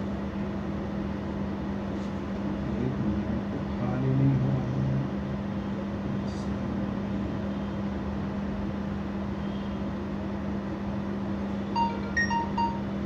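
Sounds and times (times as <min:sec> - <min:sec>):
short electronic beeps: 0:11.8 - 0:12.9.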